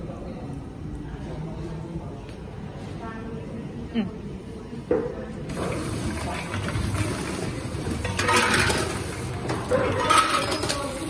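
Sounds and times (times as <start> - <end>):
packing machine running: 5.5 - 11.0
chocolate eggs rattling in feed bowl: 5.8 - 11.0.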